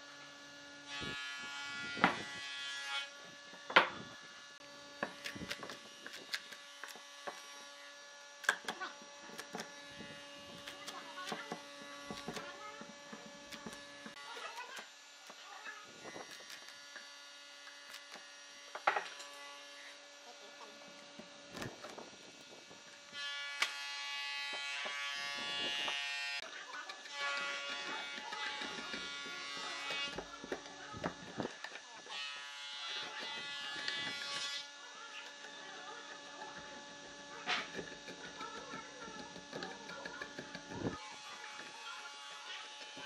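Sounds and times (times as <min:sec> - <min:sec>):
buzzing machine: 0:00.0 - 0:43.0
electrical hum: 0:00.2 - 0:43.0
chisel paring wood: 0:08.4 - 0:14.7, 0:25.7 - 0:31.8, 0:33.0 - 0:41.0.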